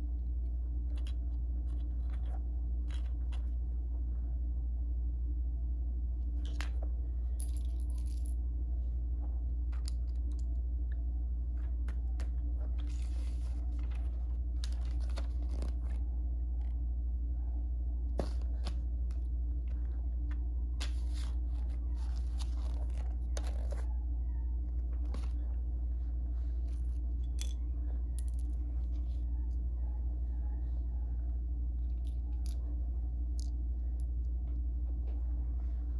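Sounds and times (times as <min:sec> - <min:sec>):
steady low hum: 0:00.0 - 0:35.9
paper booklet rustling: 0:11.6 - 0:16.1, 0:18.2 - 0:23.9, 0:24.7 - 0:27.1.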